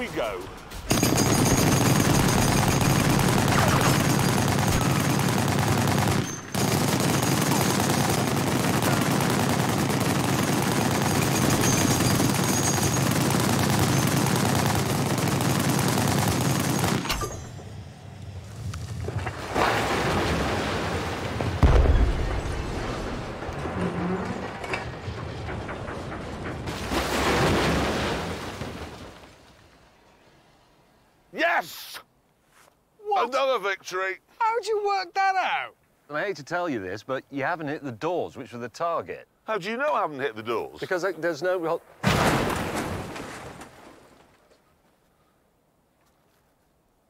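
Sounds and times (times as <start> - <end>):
machine-gun fire: 0.9 - 17.1
deep boom: 21.6 - 23.4.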